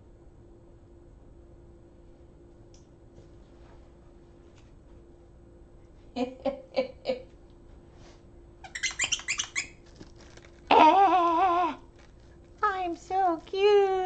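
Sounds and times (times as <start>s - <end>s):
squeaky dog toy squeaking: 8.6s - 9.8s.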